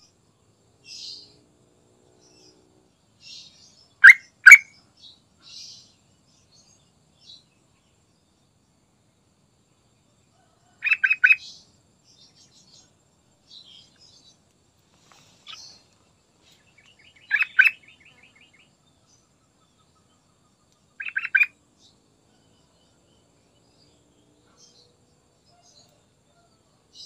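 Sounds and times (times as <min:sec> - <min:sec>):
bird singing: 0:00.0 - 0:01.4, 0:02.1 - 0:27.0
bird chattering and ticking: 0:10.8 - 0:11.4, 0:15.1 - 0:18.6, 0:20.8 - 0:21.5.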